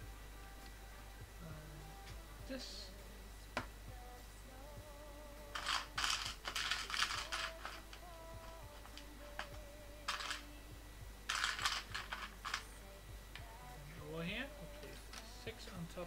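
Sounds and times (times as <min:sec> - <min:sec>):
plastic bricks clicking and rattling: 0:05.6 - 0:08.0, 0:10.1 - 0:10.4, 0:11.3 - 0:12.7.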